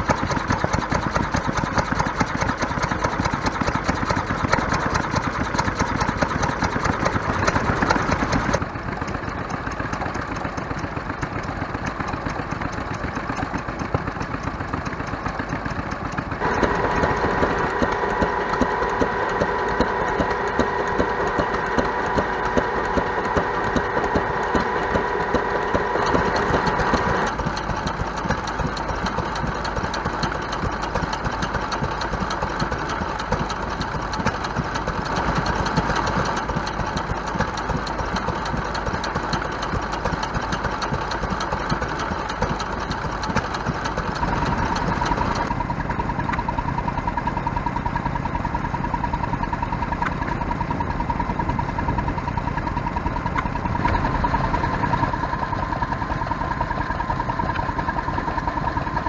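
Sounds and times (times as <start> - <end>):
flywheel engines running: 0.0 - 59.0
steady high whine: 16.4 - 27.4.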